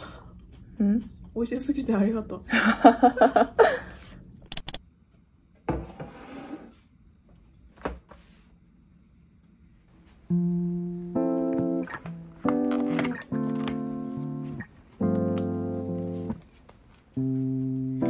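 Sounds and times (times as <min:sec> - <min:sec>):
woman talking: 0:00.8 - 0:02.8
small clicks: 0:04.5 - 0:04.8
background music of held notes: 0:10.3 - 0:16.4, 0:17.2 - 0:18.0.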